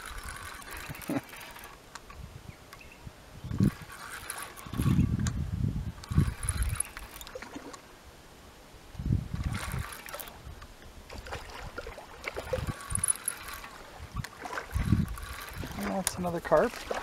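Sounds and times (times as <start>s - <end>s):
wind rumble on microphone: 2.1s - 7.2s, 8.8s - 17.0s
fish splashing in shallow water: 11.1s - 16.0s.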